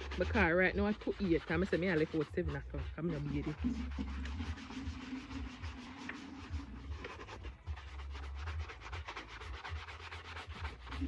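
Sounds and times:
shoe brush scrubbing: 0:00.0 - 0:11.0.

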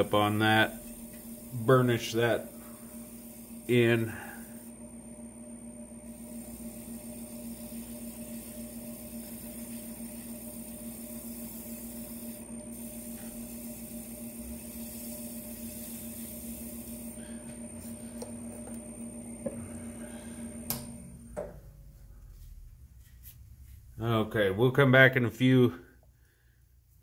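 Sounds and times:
wood lathe running: 0:00.0 - 0:21.0.

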